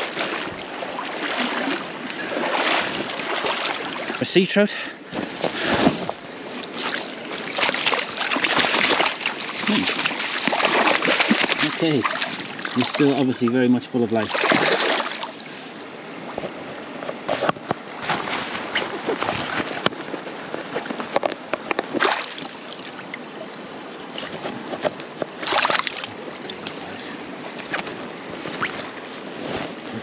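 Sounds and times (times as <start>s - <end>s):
flowing river water: 0.0s - 30.0s
water splashing and sloshing: 0.0s - 30.0s.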